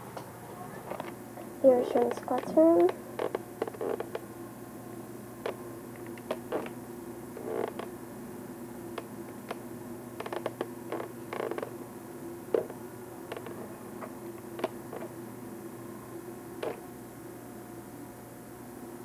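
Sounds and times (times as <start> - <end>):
steady low hum: 0.0 - 19.0
creak: 0.8 - 1.2, 2.0 - 4.2, 5.4 - 6.8, 7.4 - 7.9, 10.2 - 11.7, 12.6 - 13.6, 14.6 - 15.1, 16.6 - 16.8.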